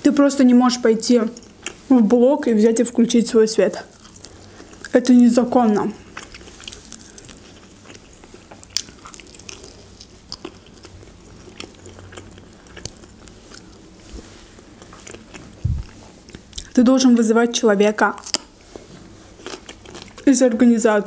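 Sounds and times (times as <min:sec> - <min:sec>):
biting and chewing food: 0:03.8 - 0:05.0, 0:06.0 - 0:16.8, 0:18.2 - 0:20.3
short low thump: 0:15.6 - 0:15.9.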